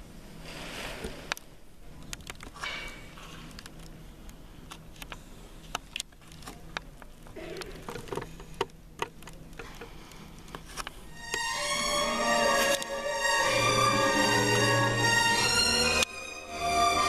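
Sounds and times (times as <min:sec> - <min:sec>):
low steady hum: 0:00.0 - 0:17.0
small clicks and knocks: 0:04.7 - 0:11.0
music with strings: 0:11.1 - 0:17.0.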